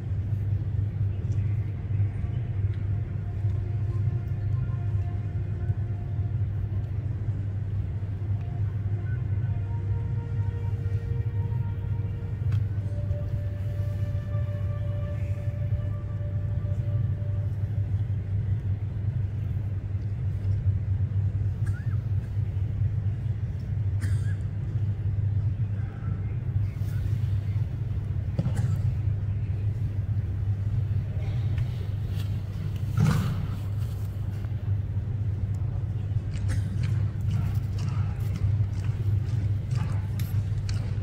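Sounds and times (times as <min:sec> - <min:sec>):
steady low rumble: 0:00.0 - 0:41.0.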